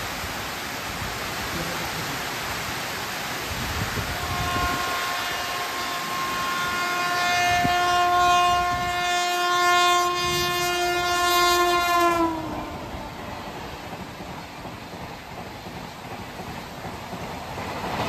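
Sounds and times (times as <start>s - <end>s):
heavy rain hiss: 0.0s - 18.0s
locomotive horn blast: 4.0s - 13.9s.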